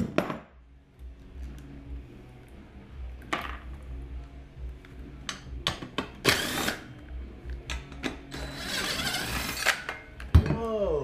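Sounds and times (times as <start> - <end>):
power driver spinning: 6.2 - 6.9, 8.3 - 9.9.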